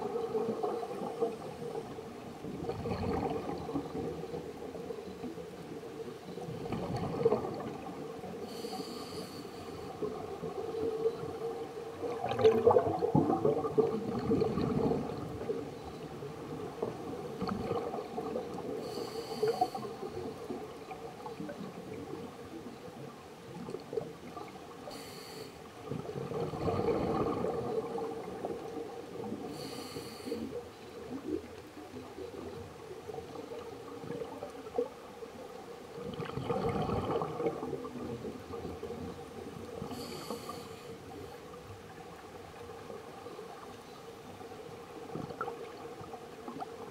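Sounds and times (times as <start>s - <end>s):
exhaust bubbles burbling: 2.6s - 4.1s, 12.0s - 15.6s, 25.9s - 28.5s, 36.0s - 39.0s
regulator hiss on inhalation: 8.4s - 9.8s, 18.8s - 20.0s, 24.9s - 25.6s, 29.5s - 30.5s, 39.9s - 41.0s.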